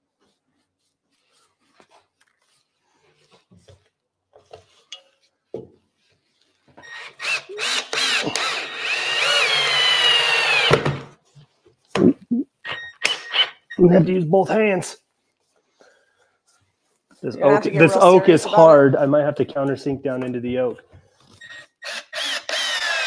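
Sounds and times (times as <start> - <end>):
cordless drill driving screw: 6.8 - 11.0, 21.4 - 23.0.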